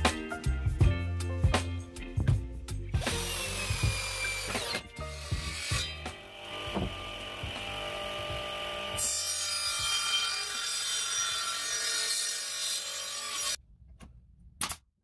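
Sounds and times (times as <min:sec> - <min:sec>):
table saw blade whining: 0:03.0 - 0:13.6.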